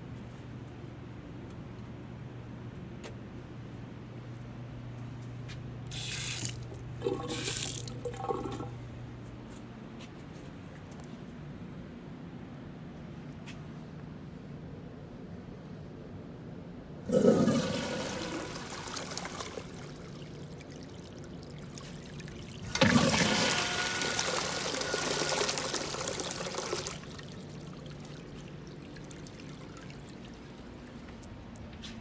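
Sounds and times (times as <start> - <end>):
urinal flushing: 5.9 - 8.8, 17.1 - 31.9.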